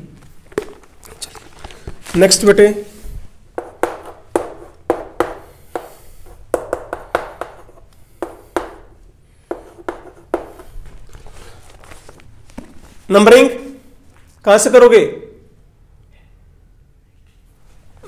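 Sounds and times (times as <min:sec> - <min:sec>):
writing on a board: 0:03.6 - 0:10.8.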